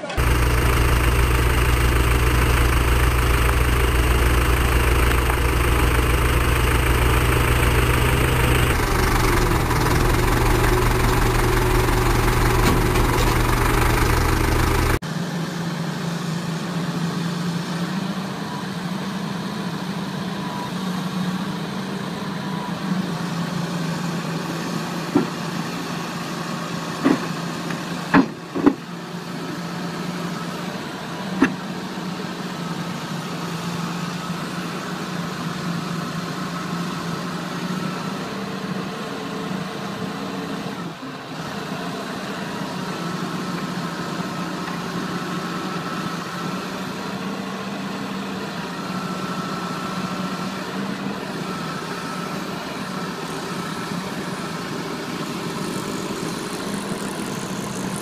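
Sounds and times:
excavator engines running: 0.0s - 58.0s.

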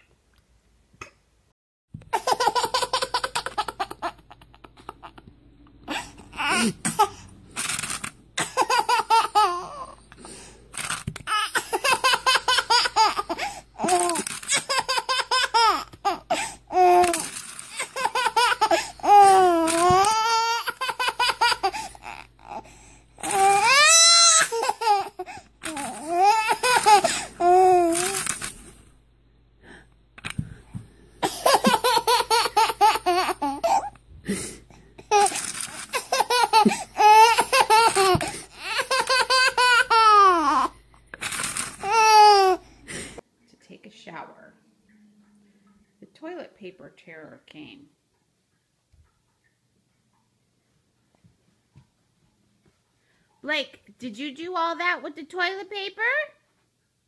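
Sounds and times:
baby laughing: 2.1s - 5.3s, 5.9s - 28.4s, 31.2s - 34.0s, 35.0s - 42.6s.

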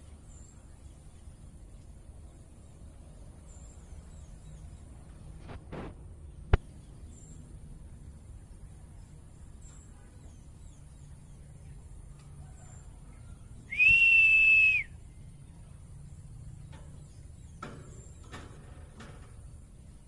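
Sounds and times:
high-pitched whistle: 13.7s - 15.0s.

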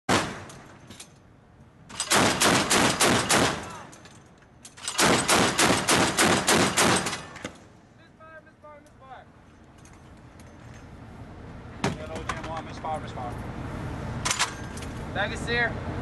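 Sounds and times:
naval gun firing bursts: 0.1s - 0.5s, 1.9s - 3.8s, 4.8s - 7.4s.

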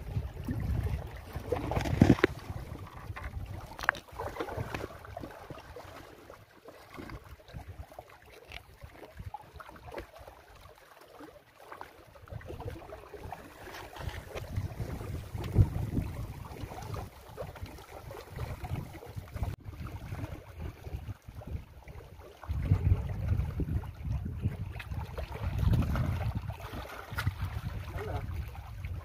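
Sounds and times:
wind buffeting microphone: 0.0s - 5.6s, 12.3s - 29.0s
small waves lapping at rocks: 0.0s - 29.0s
handling crackles and ticks: 1.6s - 4.1s.

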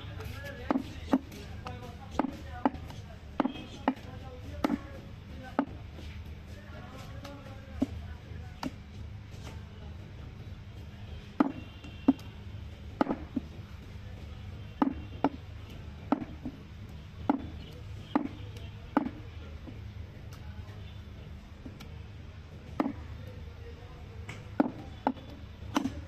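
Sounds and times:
knife chopping meat on wood: 0.6s - 5.8s, 11.4s - 12.3s, 13.0s - 13.6s, 14.7s - 15.4s, 16.1s - 16.6s, 17.2s - 19.8s, 22.8s - 23.0s, 24.3s - 26.0s.

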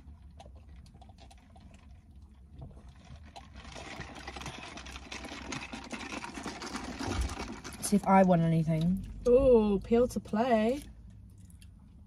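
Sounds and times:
paper cups rustling: 2.6s - 8.5s
low rumble inside car: 7.8s - 12.0s.

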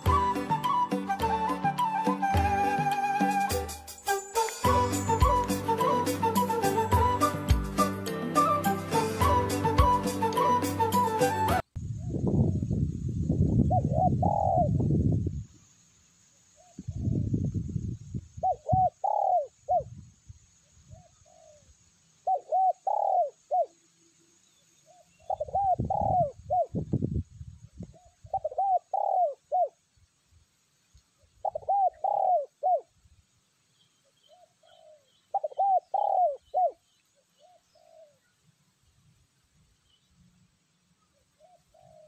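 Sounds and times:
dove cooing: 13.7s - 14.8s, 18.4s - 19.9s, 20.9s - 23.8s, 24.9s - 26.8s, 27.9s - 29.8s, 31.4s - 32.9s, 34.3s - 36.8s, 37.4s - 38.3s, 41.3s - 42.0s.

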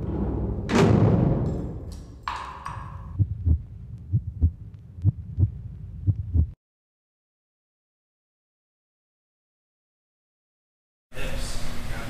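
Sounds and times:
loud hit: 0.0s - 1.9s
low thumps: 0.0s - 6.6s.

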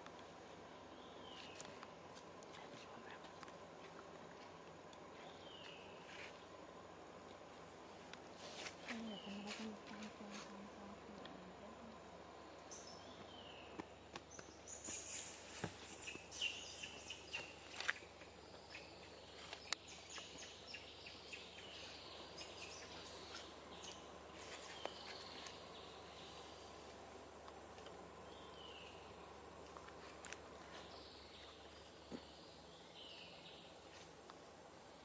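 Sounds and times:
high insect buzz: 14.7s - 27.4s.

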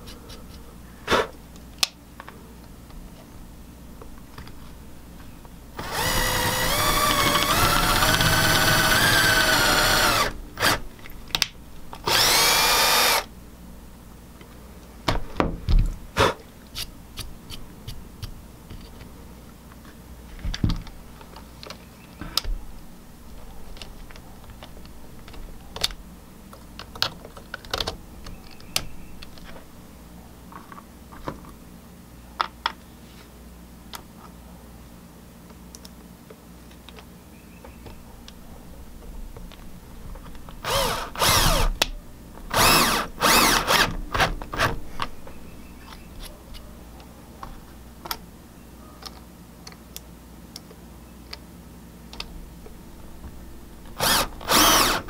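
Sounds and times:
power drill drilling into wood: 5.8s - 10.8s, 12.1s - 13.2s, 40.6s - 41.7s, 42.5s - 43.9s, 54.0s - 55.0s.

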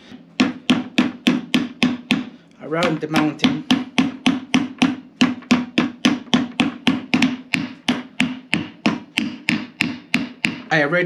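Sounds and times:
hammer tapping with ringing note: 0.4s - 11.0s.

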